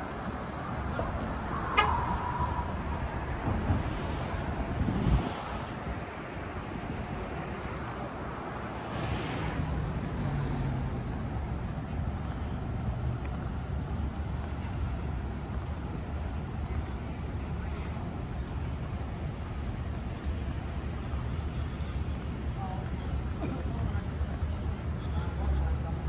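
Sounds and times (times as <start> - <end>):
traffic rumble: 0.0 - 26.0
vehicle passing: 8.7 - 12.5.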